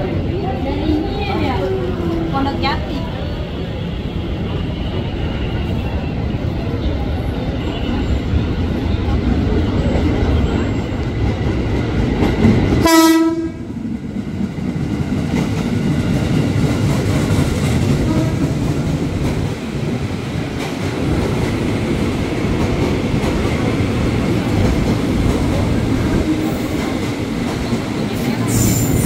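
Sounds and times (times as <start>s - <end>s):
train wheels rumbling: 0.0s - 29.0s
train horn toot: 12.8s - 13.7s, 18.0s - 18.7s.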